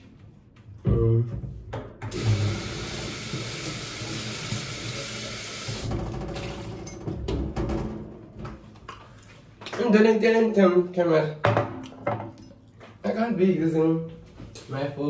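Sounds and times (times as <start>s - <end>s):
tap water running into a jug: 2.1s - 5.9s.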